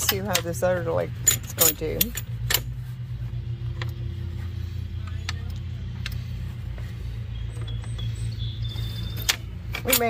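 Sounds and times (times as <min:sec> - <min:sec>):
low mechanical hum: 0:00.0 - 0:10.0
metal hardware clicking: 0:01.2 - 0:02.8, 0:09.1 - 0:10.0.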